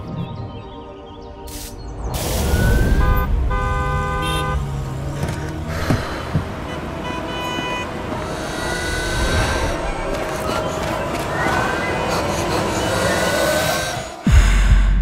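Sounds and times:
background music: 0:00.0 - 0:03.5, 0:04.7 - 0:15.0
loud traffic rumble: 0:01.9 - 0:14.6
car horns honking: 0:02.3 - 0:14.0.

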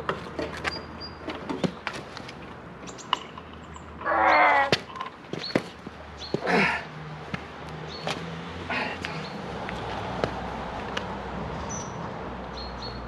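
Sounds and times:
man grunting with effort: 0:06.4 - 0:06.9.

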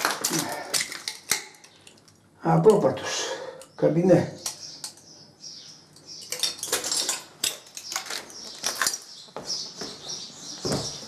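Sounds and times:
footsteps crunching over debris: 0:08.0 - 0:11.0.

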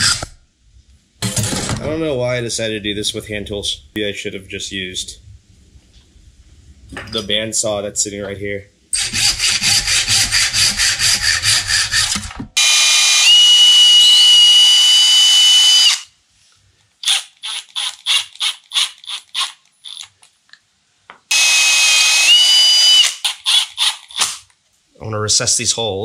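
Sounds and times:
impact driver drilling wood: 0:09.0 - 0:16.1, 0:17.0 - 0:20.0, 0:21.3 - 0:24.4.

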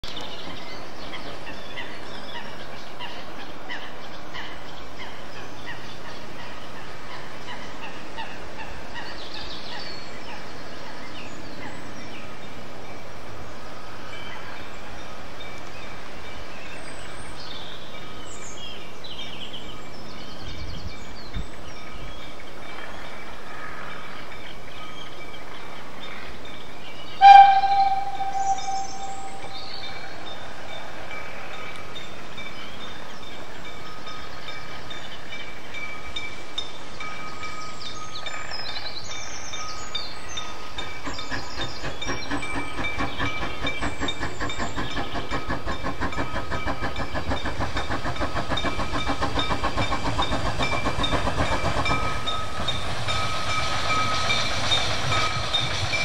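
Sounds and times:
birds chirping: 0:15.8 - 0:30.4
bell ringing: 0:27.2 - 0:30.2.

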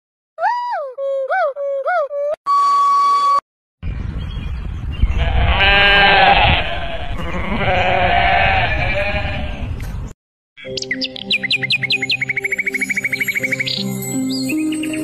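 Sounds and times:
ibex bleating: 0:05.2 - 0:09.7.

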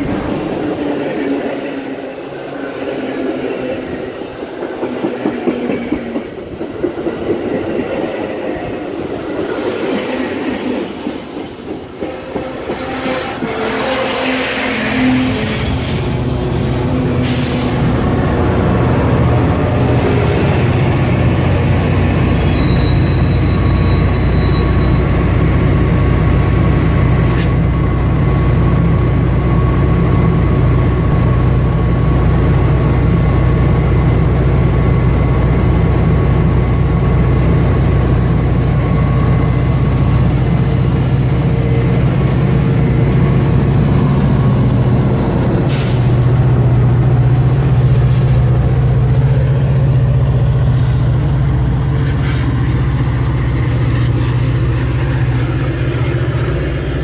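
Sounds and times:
diesel locomotive engine drone: 0:00.0 - 0:57.0.

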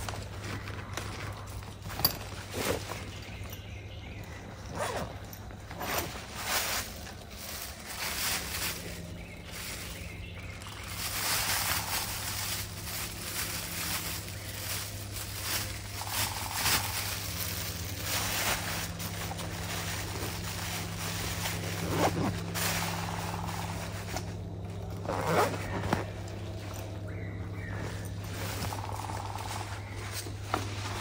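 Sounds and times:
rustling and scraping: 0:00.0 - 0:31.0
steady low hum: 0:00.0 - 0:31.0.

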